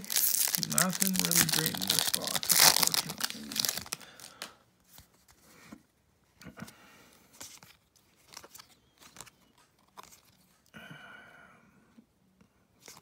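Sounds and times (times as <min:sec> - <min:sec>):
trading cards clicking and rustling: 0:00.0 - 0:04.5.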